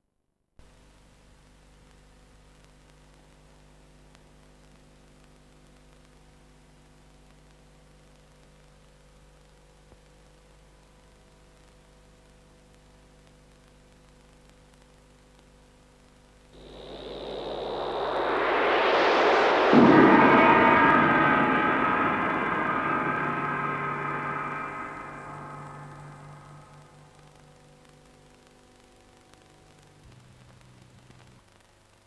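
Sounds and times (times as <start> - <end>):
gong ringing: 16.6 - 27.2
electrical hum: 16.6 - 28.4.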